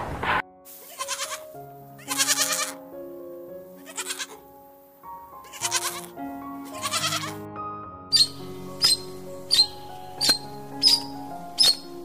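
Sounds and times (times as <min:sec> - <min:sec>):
background music of held notes: 0:00.4 - 0:12.0
goats bleating: 0:00.8 - 0:02.8, 0:03.8 - 0:04.4, 0:05.5 - 0:06.1, 0:06.7 - 0:07.4.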